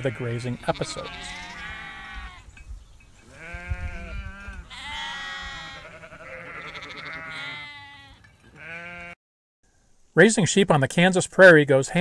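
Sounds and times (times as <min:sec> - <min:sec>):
sheep bleating: 0:00.0 - 0:02.5, 0:03.3 - 0:09.2.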